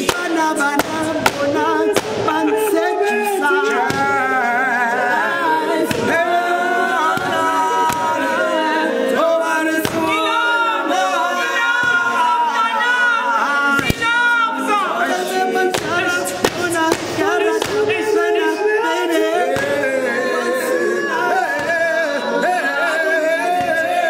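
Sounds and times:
hand claps: 0.0 - 2.4, 7.9 - 8.1, 15.7 - 17.9
men singing in harmony: 0.0 - 24.0.

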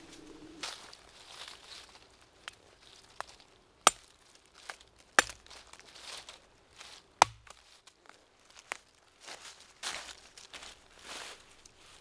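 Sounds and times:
dry wood cracking: 0.0 - 9.0
twigs clicking: 0.0 - 9.0
dry leaves rustling: 0.0 - 12.0.

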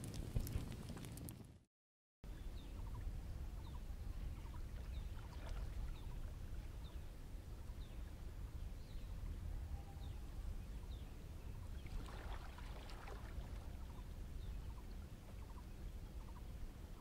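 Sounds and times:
crackle of clicks: 0.0 - 1.6
wind rumbling on microphone: 0.0 - 1.6, 2.3 - 17.0.

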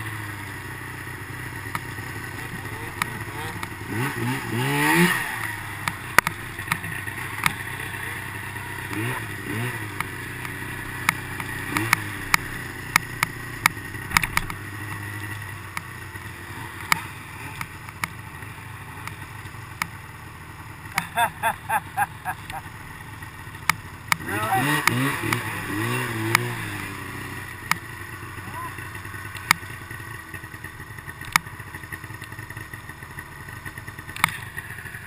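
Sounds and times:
snowmobile engine revving: 1.6 - 13.0, 20.8 - 22.8, 24.1 - 29.5
sharp clicks and knocks: 5.8 - 7.6, 10.0 - 14.6, 29.3 - 29.6, 31.2 - 31.5, 34.1 - 34.4.

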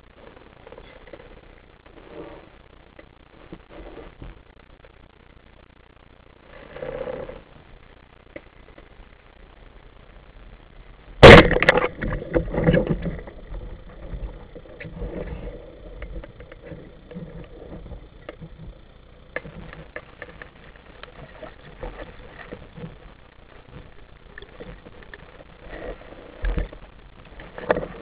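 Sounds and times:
low murmur of water: 0.0 - 28.0
faint clicks: 8.0 - 9.0, 11.6 - 28.0
sharp underwater bang: 11.2 - 13.4.

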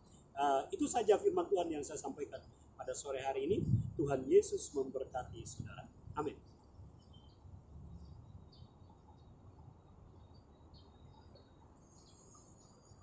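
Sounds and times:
small birds chirping: 2.0 - 13.0
steady high insect trill: 9.8 - 13.0.

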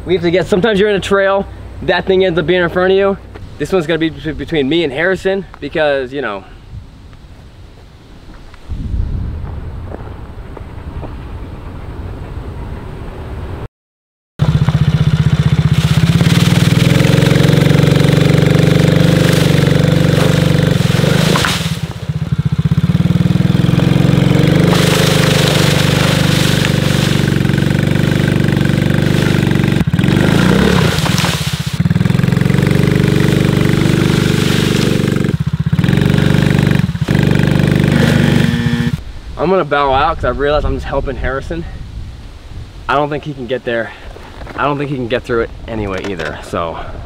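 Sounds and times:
quad engine revving: 14.4 - 39.0.

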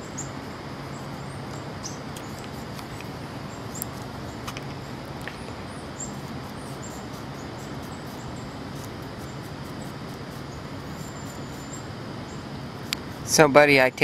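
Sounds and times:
faint high bird chirps: 0.0 - 2.7, 3.5 - 8.6, 9.2 - 12.5
steady background hum: 0.0 - 14.0.

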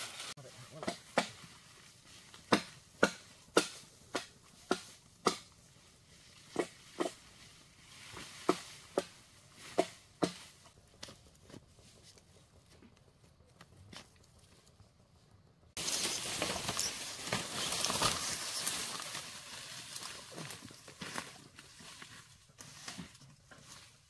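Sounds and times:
sharp knocks from tool blows: 2.5 - 5.5.

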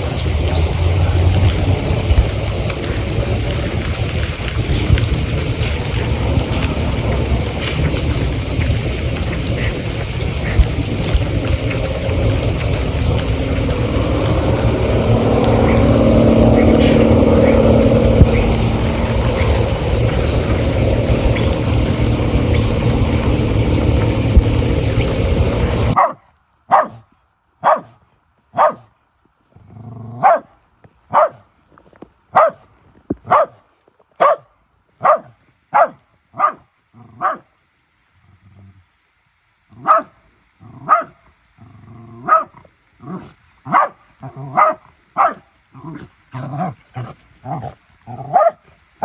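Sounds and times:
loud steady rushing noise: 0.0 - 26.0
dog barking: 26.0 - 28.9, 30.2 - 30.5, 31.1 - 31.4, 32.3 - 32.7, 33.3 - 33.6, 34.2 - 37.5, 39.8 - 40.2, 40.8 - 41.2, 42.2 - 42.6, 43.6 - 45.5, 47.6 - 48.6.

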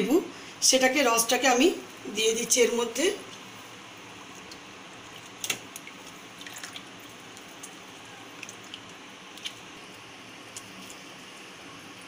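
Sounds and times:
juice dripping into water: 3.3 - 12.0.

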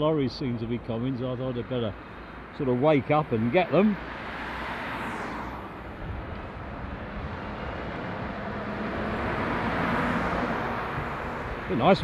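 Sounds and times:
tyre and road noise: 0.0 - 12.0
car driving past: 4.0 - 11.7.

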